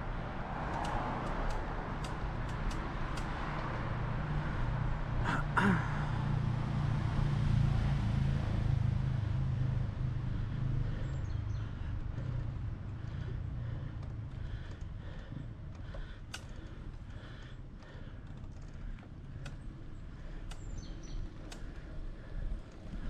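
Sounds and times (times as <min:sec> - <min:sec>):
car passing: 0:00.0 - 0:17.8
road noise: 0:00.0 - 0:23.0.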